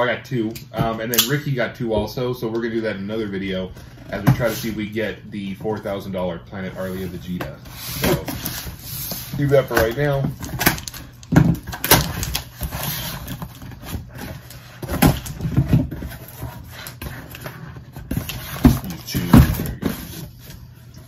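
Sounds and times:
cardboard rustling and scraping: 3.1 - 21.0.

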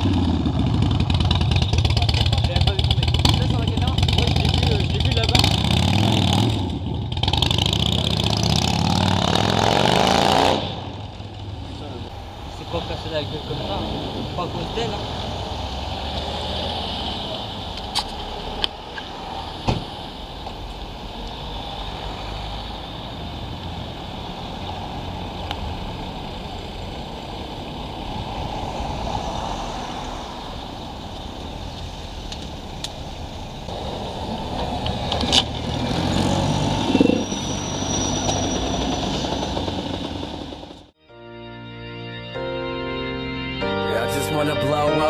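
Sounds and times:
motorcycle engine running: 0.0 - 8.5
wind and road noise: 0.0 - 41.0.

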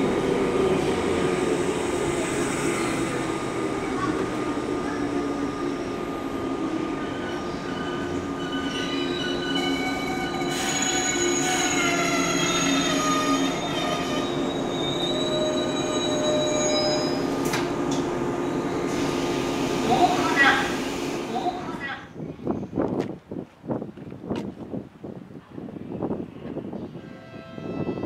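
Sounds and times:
electric train rumbling: 0.0 - 22.0.

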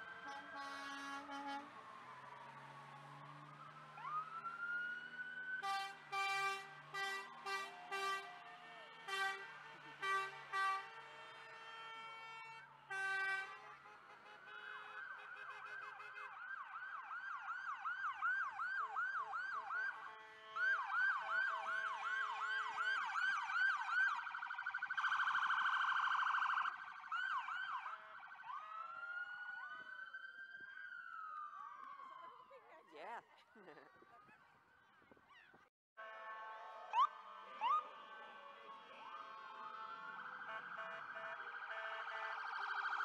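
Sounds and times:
police siren yelp and wail: 0.0 - 35.2, 36.0 - 43.0
vehicle horn blasts: 0.2 - 1.7, 5.6 - 8.3, 9.0 - 11.2, 12.2 - 16.2, 36.0 - 37.0, 40.5 - 42.3
harsh buzzing siren tone: 39.6 - 43.0.

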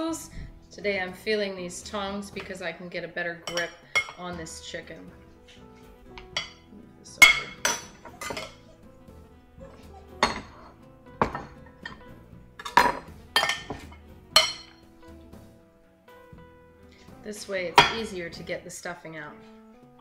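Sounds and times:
metal tongs clinking on glass dish: 7.2 - 8.6, 14.4 - 14.8.

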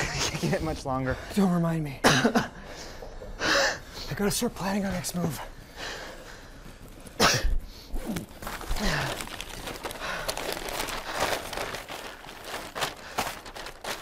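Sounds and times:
paper map crinkling: 6.2 - 7.2, 7.9 - 14.0.

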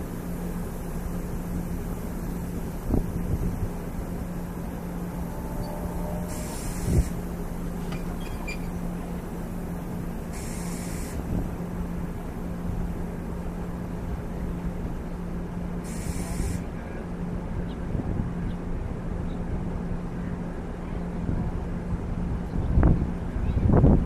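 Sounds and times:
diesel locomotive idling: 0.0 - 22.5
wind rumble on microphone: 1.6 - 10.3, 11.1 - 13.0, 17.2 - 24.0
short hisses: 6.2 - 7.2, 10.3 - 11.3, 15.8 - 16.6.

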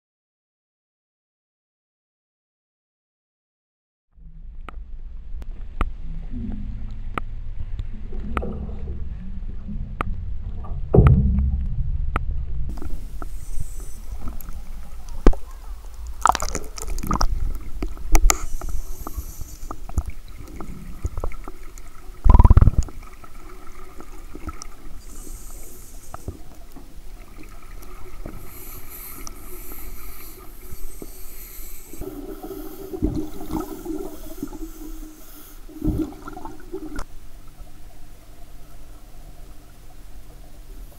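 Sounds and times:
clicks and knocks underwater: 4.6 - 25.1, 32.0 - 34.6, 35.8 - 37.1
underwater air bubbling: 5.6 - 38.3.

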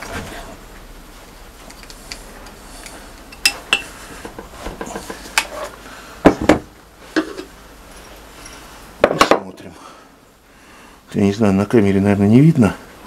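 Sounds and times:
metal valve clinking and knocking: 3.3 - 3.9.

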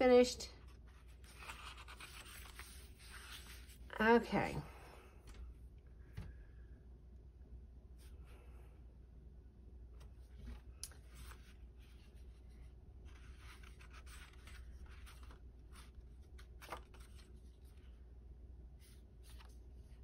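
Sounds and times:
low room hum: 0.0 - 20.0
paper pages rustling: 0.6 - 3.9, 10.0 - 18.0, 18.8 - 20.0.

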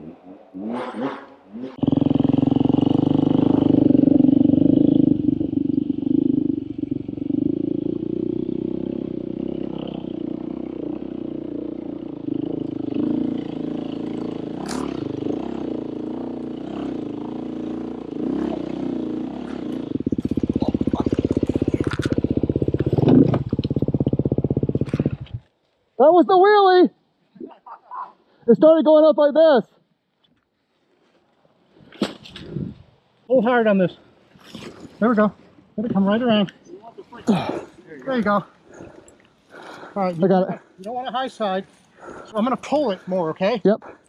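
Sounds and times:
dirt bike engine revving: 0.7 - 25.4.

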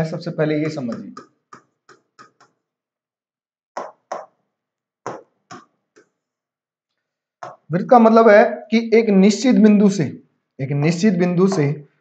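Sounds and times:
pen tapping on screen: 0.6 - 2.6, 3.8 - 4.4, 5.1 - 6.2, 7.4 - 7.7, 11.4 - 11.7.

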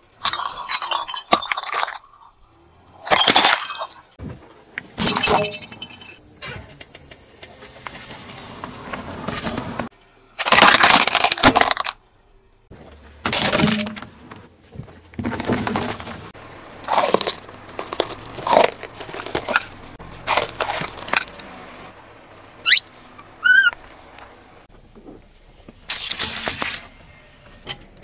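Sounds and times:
plastic crunching under car tyre: 10.4 - 12.0, 12.9 - 21.6
short high squeaks: 22.6 - 23.8.

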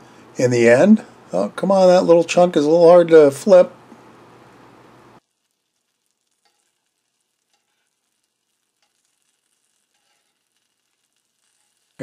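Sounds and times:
chicken sizzling in a pan: 5.2 - 12.0.

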